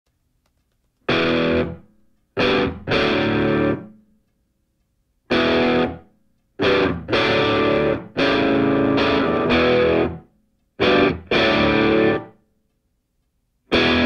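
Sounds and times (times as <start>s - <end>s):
distorted electric guitar chords: 1.1s - 4.0s, 5.3s - 12.4s, 13.7s - 14.0s.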